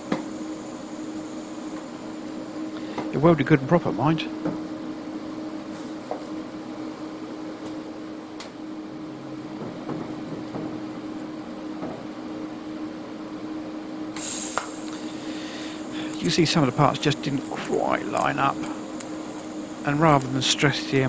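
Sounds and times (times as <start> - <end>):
welder arc hissing: 0.0 - 3.5, 14.1 - 21.0
steady machine hum: 0.0 - 21.0.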